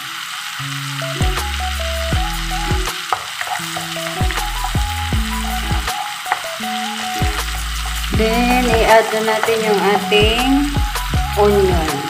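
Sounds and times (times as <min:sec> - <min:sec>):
background music with low notes: 0:00.0 - 0:12.0
garlic sizzling in butter: 0:00.0 - 0:12.0.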